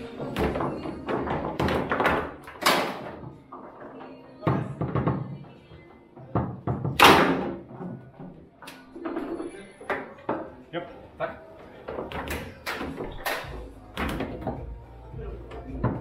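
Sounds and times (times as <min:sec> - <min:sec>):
foosball clacks and thuds: 0:00.0 - 0:03.8, 0:06.2 - 0:08.0, 0:15.5 - 0:16.0
music: 0:00.0 - 0:16.0.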